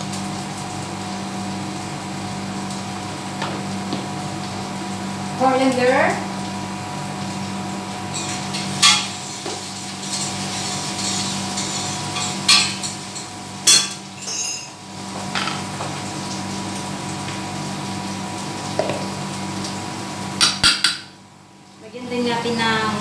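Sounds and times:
fan hum: 0:00.0 - 0:23.0
glass jars and spoon clinking: 0:13.7 - 0:14.8
sharp knocks on counter: 0:18.8 - 0:19.0.

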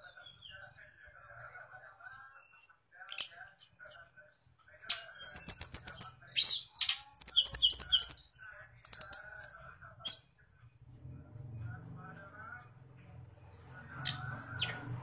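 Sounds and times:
songbird trilling: 0:05.2 - 0:08.3, 0:08.9 - 0:10.3.

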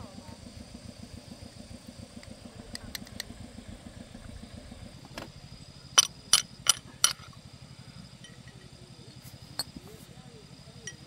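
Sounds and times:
low engine rumble: 0:00.0 - 0:11.0.

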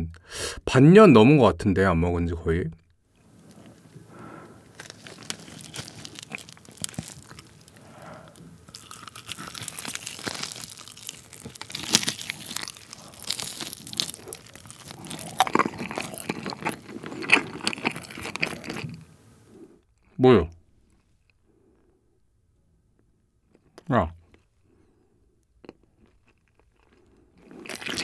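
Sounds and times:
biting and chewing chicken: 0:03.3 - 0:19.1, 0:25.6 - 0:28.0.

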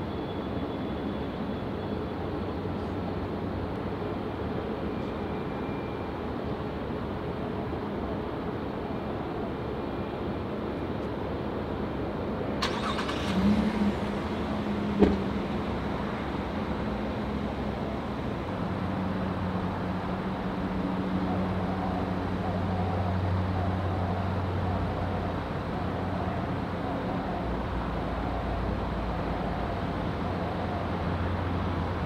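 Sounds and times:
engine rumble: 0:12.4 - 0:32.0.

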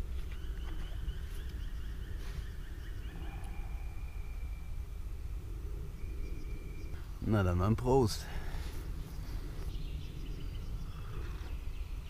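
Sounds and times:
low rumble: 0:00.0 - 0:07.3.

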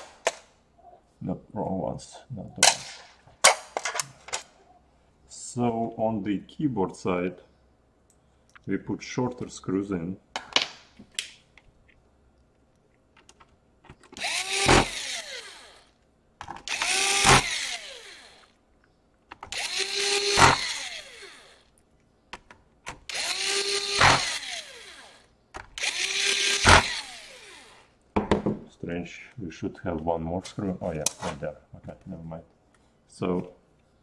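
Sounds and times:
cordless drill driving screws: 0:14.1 - 0:16.0, 0:16.6 - 0:18.6, 0:19.4 - 0:21.7, 0:23.0 - 0:27.9.

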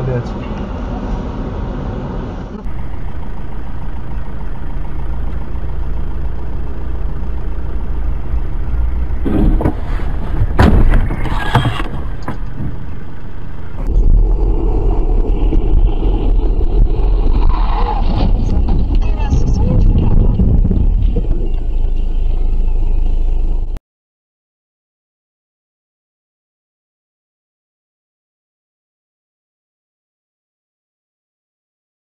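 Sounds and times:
car engine and road rumble: 0:00.0 - 0:23.8
loud knocks and clatter: 0:09.2 - 0:13.9, 0:15.0 - 0:21.4.

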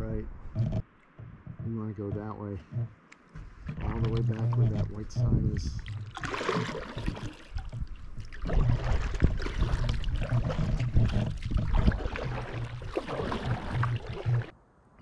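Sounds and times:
paddle strokes splashing: 0:03.4 - 0:14.5
wind buffeting microphone: 0:03.5 - 0:06.1, 0:07.0 - 0:14.5.

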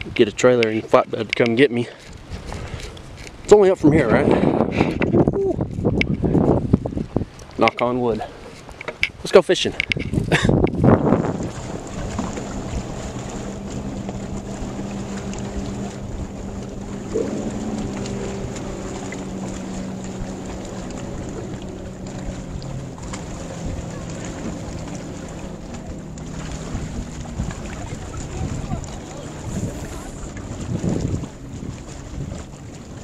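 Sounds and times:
wind buffeting microphone: 0:00.0 - 0:33.0
low engine hum: 0:10.0 - 0:33.0.

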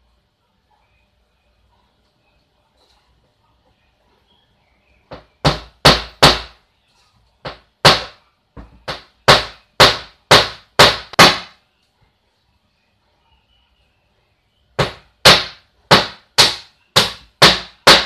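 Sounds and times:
hammer striking plywood: 0:05.1 - 0:06.6, 0:07.4 - 0:11.6, 0:14.8 - 0:18.0.

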